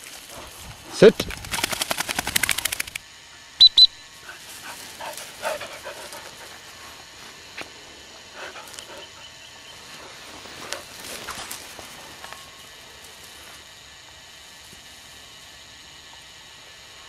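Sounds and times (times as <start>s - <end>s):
dog panting: 4.2s - 7.1s, 8.2s - 10.9s.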